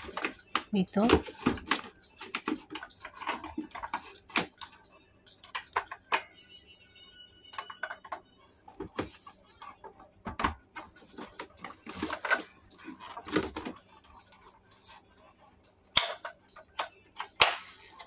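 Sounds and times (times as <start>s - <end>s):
plastic toy clicks and knocks: 5.4s - 6.3s, 15.9s - 18.0s
faint high tones: 6.0s - 8.7s.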